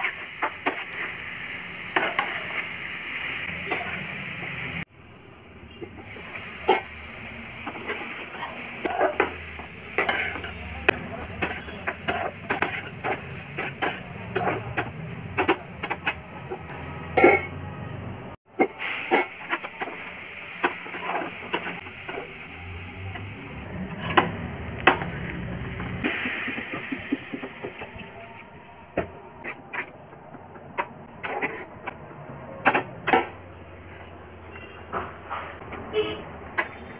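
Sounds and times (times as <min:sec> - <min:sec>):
metal spatula scraping frying pan: 0:07.6 - 0:10.6.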